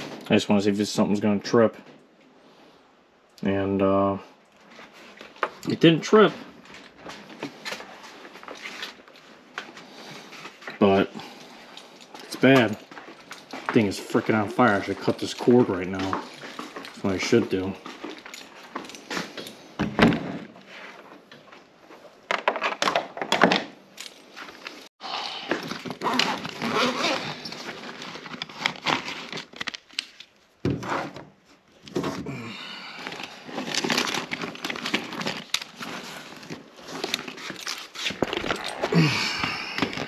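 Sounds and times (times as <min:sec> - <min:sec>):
handling knocks clicks and rustling: 0:04.4 - 0:24.9, 0:33.2 - 0:38.9.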